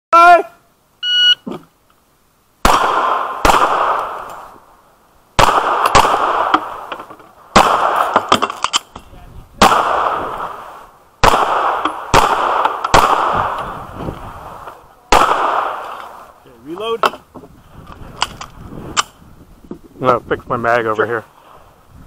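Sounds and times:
pistol shots with echo: 2.6 - 4.2, 5.4 - 6.8, 7.5 - 8.4, 9.6 - 10.6, 11.2 - 13.7, 15.1 - 16.0.

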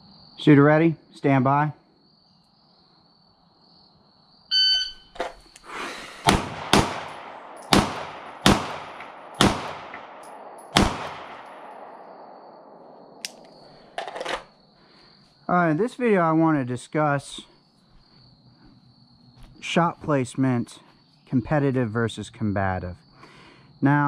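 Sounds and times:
shot timer beep: 4.5 - 5.1
pistol shots with echo: 6.2 - 13.3.

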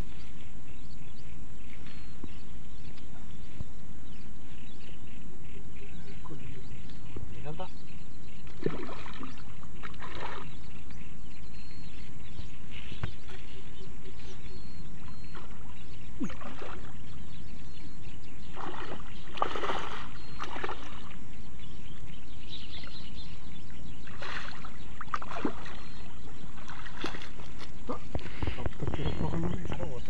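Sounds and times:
fish splashing in water: 8.4 - 10.6, 15.3 - 17.0, 18.5 - 21.2, 24.0 - 28.4.

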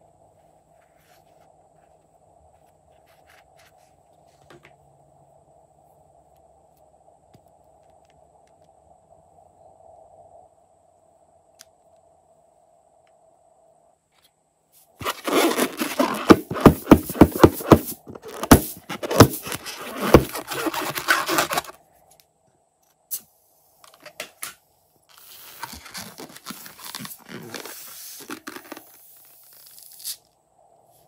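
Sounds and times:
fingers rubbing a latex balloon: 15.0 - 21.8.

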